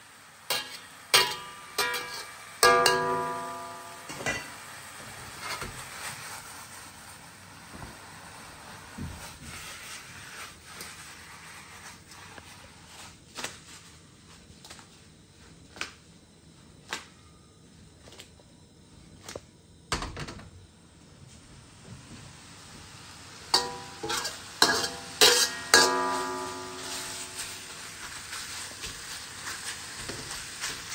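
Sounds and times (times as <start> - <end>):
beef sizzling in a wok: 0.0 - 14.9, 21.4 - 30.9
wok and spatula knocking: 0.5 - 4.6, 23.5 - 29.2.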